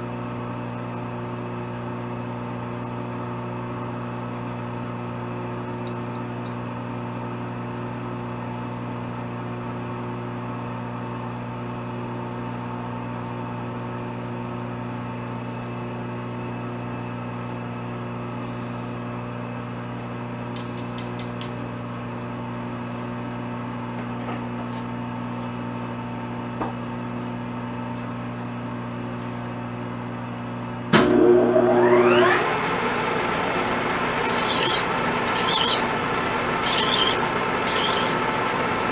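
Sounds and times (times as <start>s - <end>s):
lathe motor humming: 31.1s - 38.8s
lathe spindle whine: 31.1s - 38.8s.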